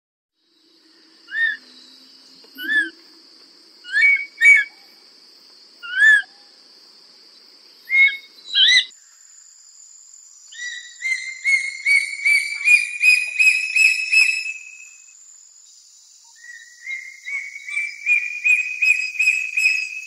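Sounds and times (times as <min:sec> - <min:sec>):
high-pitched background hiss: 0:00.4 - 0:20.0.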